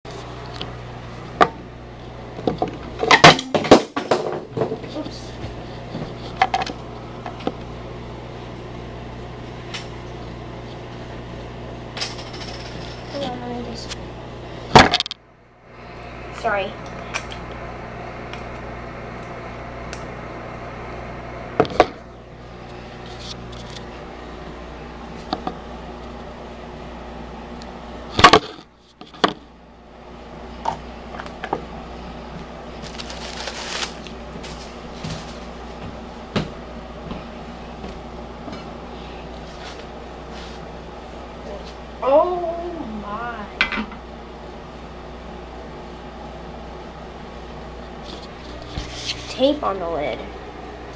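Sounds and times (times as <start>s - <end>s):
steady low hum: 0.1s - 50.9s
paper rustle: 32.8s - 35.5s.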